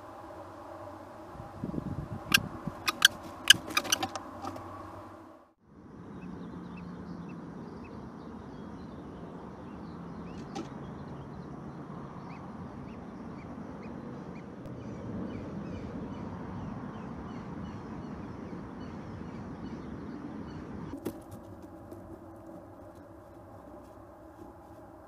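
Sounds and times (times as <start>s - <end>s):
small birds chirping: 2.2s - 4.6s, 6.0s - 21.0s.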